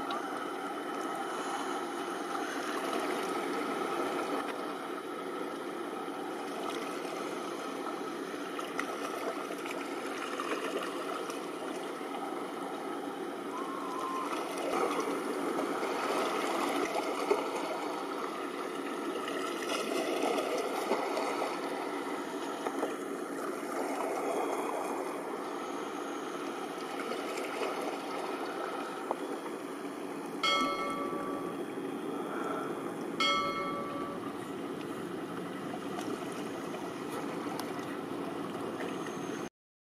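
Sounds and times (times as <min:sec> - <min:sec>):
river water washing: 0:00.0 - 0:39.1
passing ship: 0:00.0 - 0:39.5
bell-like ding: 0:30.4 - 0:31.6, 0:33.2 - 0:34.4.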